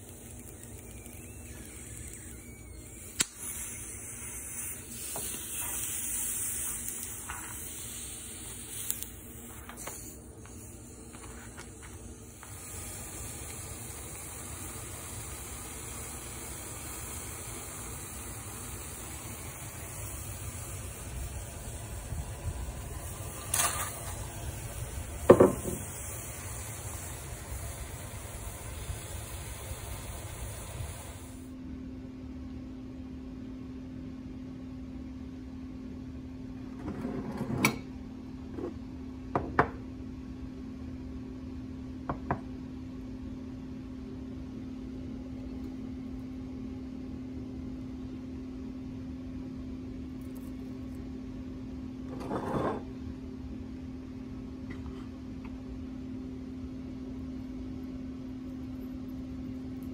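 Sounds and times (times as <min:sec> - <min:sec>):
steady hiss: 0:00.0 - 0:31.6
low appliance hum: 0:00.0 - 0:59.9
dishes knocking on countertop: 0:25.3 - 0:25.8, 0:39.3 - 0:39.8.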